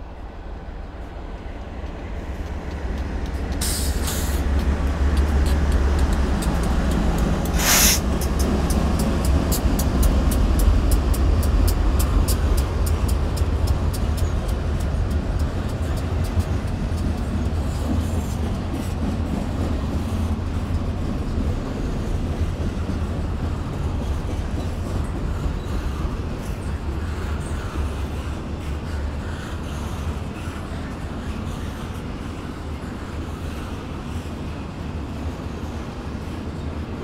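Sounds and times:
train rumbling over bridge: 0.0s - 37.0s
train wheel clicks on rail joints: 1.3s - 21.6s.

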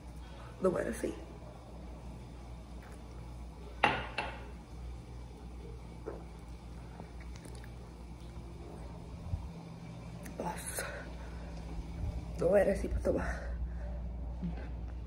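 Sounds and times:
low steady hum: 0.0s - 15.0s
person drinking from a glass: 6.0s - 8.7s.

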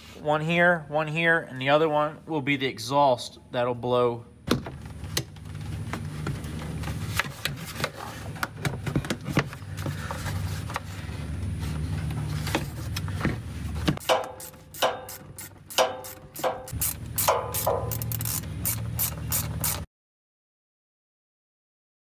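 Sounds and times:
steady low hum: 4.2s - 19.8s.

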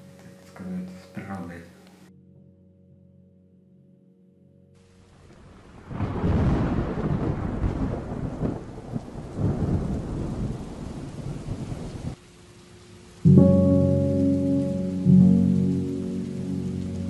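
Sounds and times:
rain hiss: 0.0s - 2.1s, 4.8s - 17.0s
rolling thunder: 5.1s - 12.2s.

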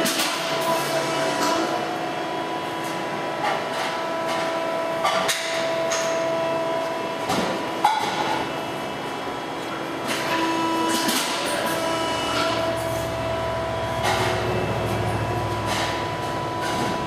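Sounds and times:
supercharger whine: 11.7s - 17.0s
supercharged engine running: 13.0s - 17.0s.

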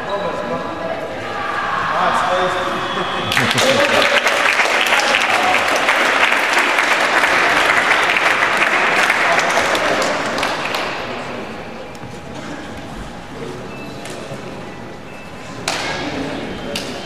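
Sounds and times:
crowd applauding: 3.0s - 11.6s.

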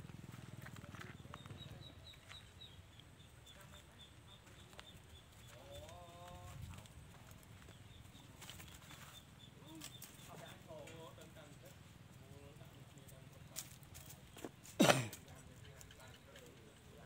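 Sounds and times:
faint high chirp: 1.0s - 6.0s.

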